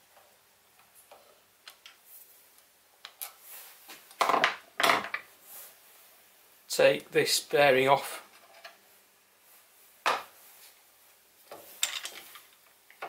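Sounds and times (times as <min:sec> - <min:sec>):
metal tools clattering on workbench: 0:11.8 - 0:12.5.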